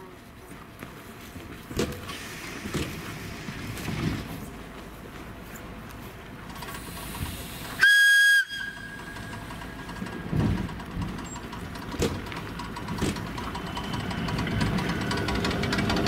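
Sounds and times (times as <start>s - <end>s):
train running noise: 0.0s - 16.0s
train clunks: 1.5s - 4.9s, 6.3s - 16.0s
high train whistle blast: 7.8s - 9.3s.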